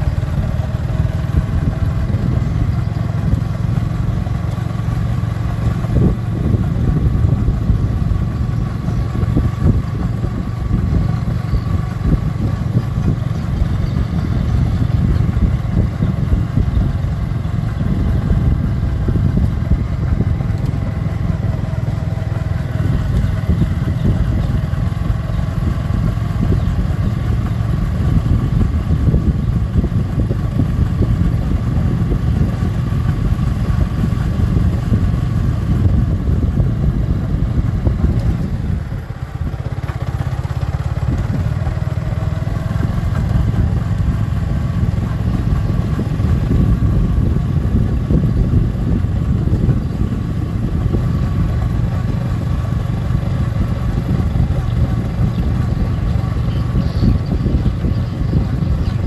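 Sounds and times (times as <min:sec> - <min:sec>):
motorcycle engine running: 0:00.0 - 0:59.0
road and wind noise: 0:00.0 - 0:59.0.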